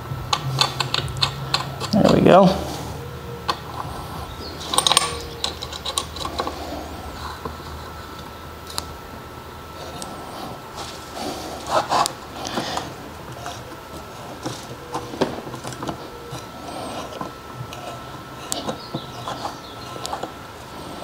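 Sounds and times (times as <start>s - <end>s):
tap wrench clicking and creaking: 0.3s - 2.3s, 4.6s - 6.6s.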